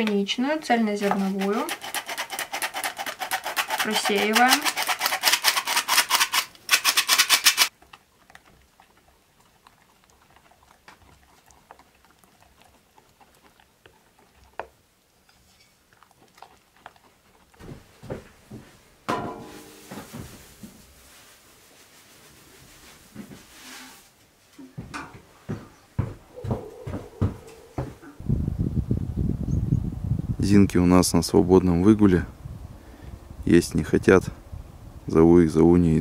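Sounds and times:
flour sifter rasping: 19.4 - 24.2
animal calls: 25.7 - 28.2.

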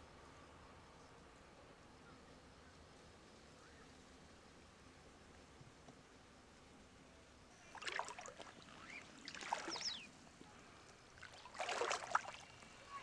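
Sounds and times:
water splashing around wading legs: 7.7 - 10.0, 11.2 - 12.6.

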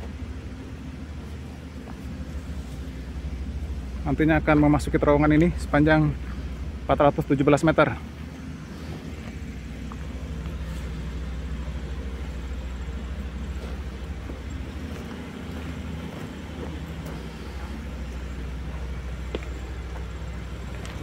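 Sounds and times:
diesel engine humming: 0.0 - 21.0.

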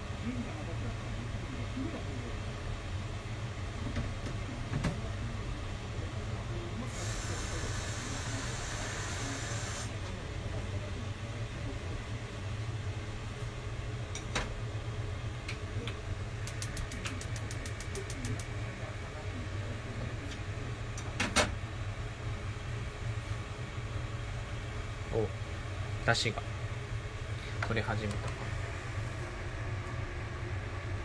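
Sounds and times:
steady low hum: 0.0 - 31.0
gas stove igniter clicks: 16.4 - 18.5.

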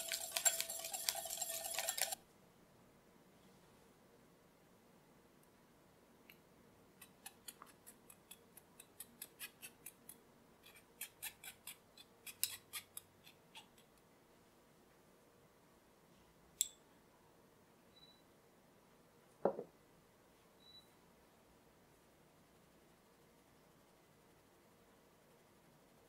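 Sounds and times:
flour sifter clicking: 0.0 - 2.2.

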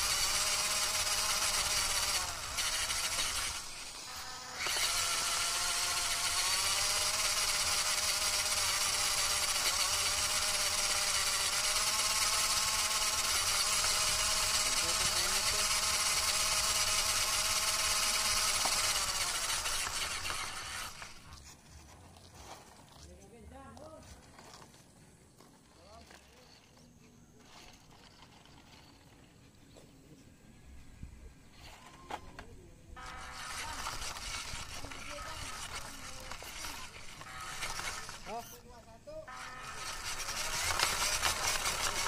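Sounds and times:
electric motor whining: 0.0 - 21.5, 31.5 - 42.0.

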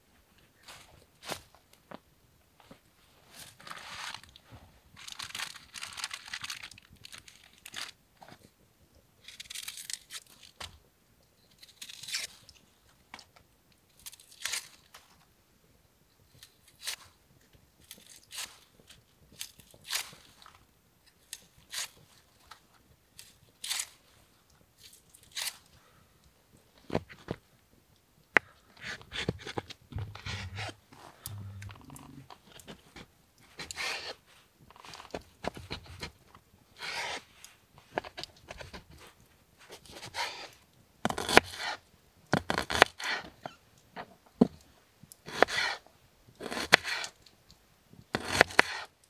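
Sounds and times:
plastic bag crinkling: 5.0 - 8.0.

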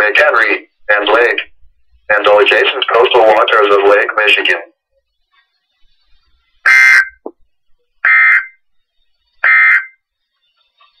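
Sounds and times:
buzzy digital two-tone bursts: 5.1 - 7.3, 8.0 - 10.2.

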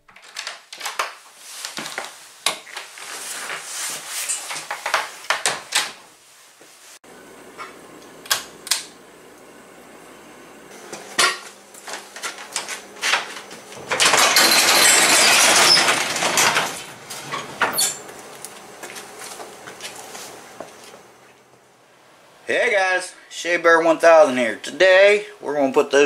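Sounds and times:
garage door being raised: 12.2 - 18.1.

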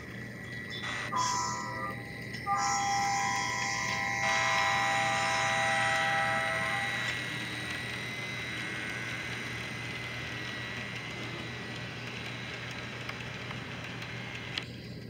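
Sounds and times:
low hum: 0.0 - 15.0
model train wheels whirring on rail: 0.0 - 15.0
click: 11.7 - 14.7.

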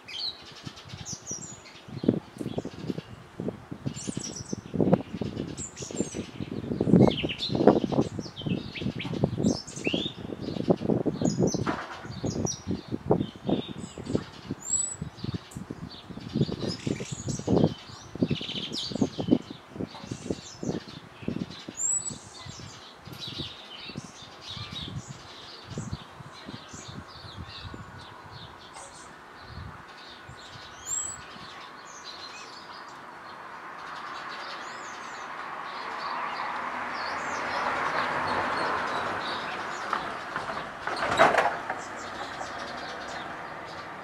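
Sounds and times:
small birds chirping: 0.0 - 44.0
passing vehicle: 33.4 - 44.0.

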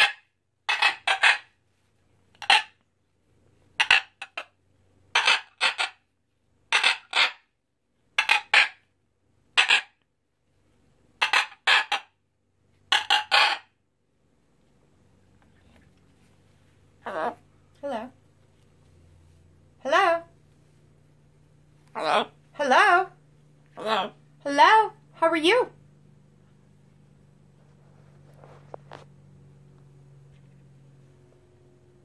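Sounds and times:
macaw calls: 0.0 - 1.5, 2.4 - 2.7, 3.8 - 4.5, 5.2 - 6.0, 6.7 - 7.5, 8.2 - 8.8, 9.6 - 10.0, 11.2 - 12.1, 12.9 - 13.7.

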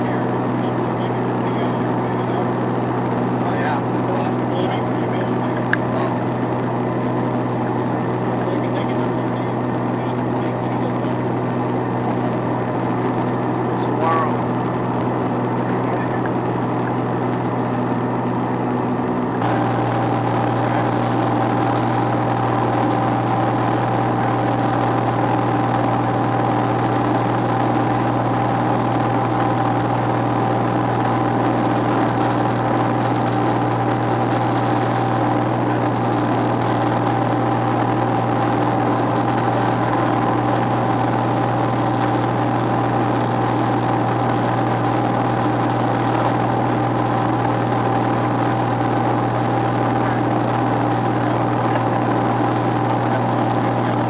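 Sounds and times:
propeller aircraft engine droning: 0.0 - 54.0.

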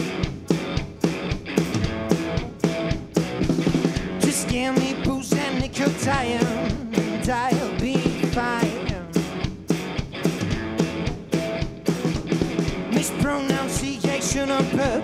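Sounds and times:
distorted electric guitar: 0.0 - 15.0
drum kit playing: 0.0 - 15.0
person singing: 3.8 - 9.3, 12.9 - 15.0.

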